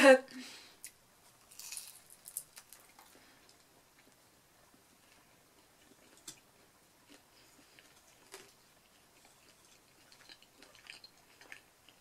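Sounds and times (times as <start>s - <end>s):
soft wet chewing clicks: 7.0s - 12.0s.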